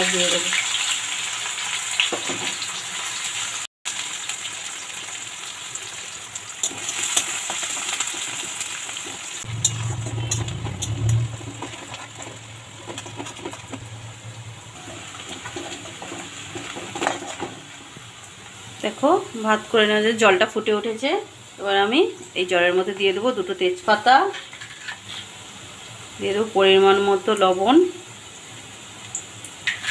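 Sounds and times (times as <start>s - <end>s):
onions sizzling in hot oil: 0.0s - 29.9s
spatula scraping a metal pan: 9.4s - 13.9s, 14.8s - 17.7s, 24.3s - 25.4s, 29.6s - 29.9s.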